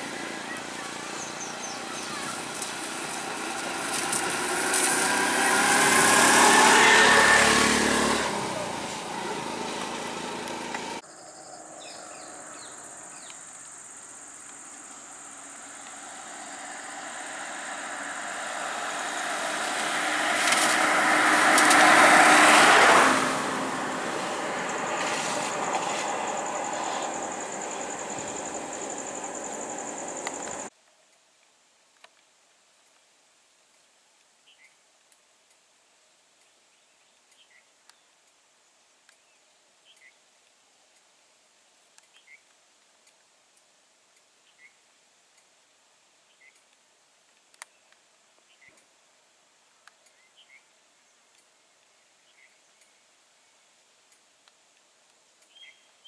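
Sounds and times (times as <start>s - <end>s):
auto-rickshaw engine passing: 0.0s - 11.0s, 14.6s - 30.7s
car passing on wet road: 0.0s - 11.0s, 14.4s - 30.7s.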